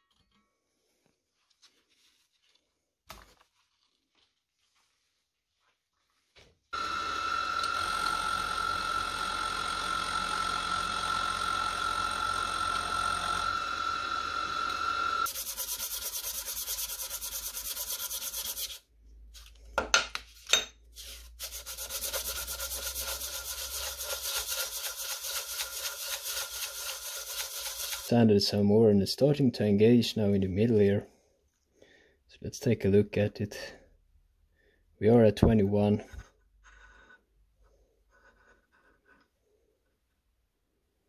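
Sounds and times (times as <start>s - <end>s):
machine whine: 6.8s - 15.3s
metal rubbed on sandpaper: 15.2s - 18.9s, 21.0s - 28.3s.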